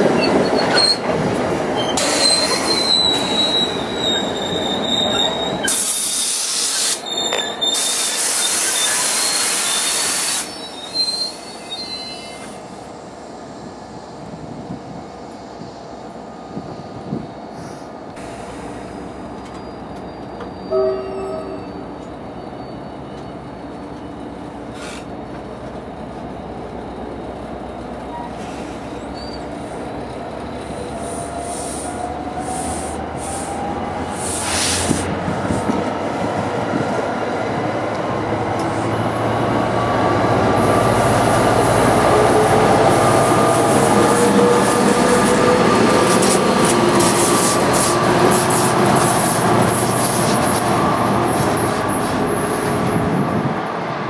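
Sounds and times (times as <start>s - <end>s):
train wheels squealing: 0.2s - 1.1s, 1.8s - 12.8s, 18.6s - 25.3s, 28.0s - 35.1s.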